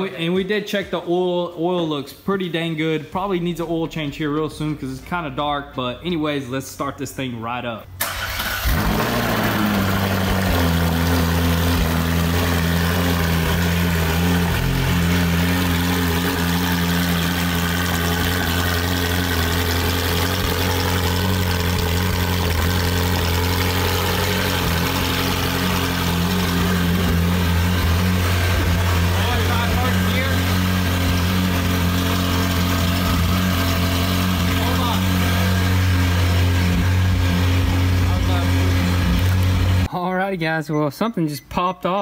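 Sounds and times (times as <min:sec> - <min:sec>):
car engine idling: 0:08.0 - 0:39.9.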